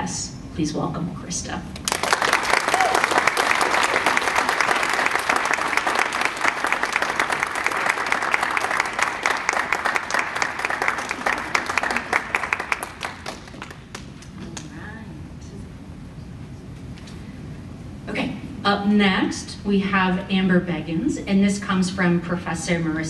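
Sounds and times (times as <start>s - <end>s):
audience clapping: 1.8s - 14.7s.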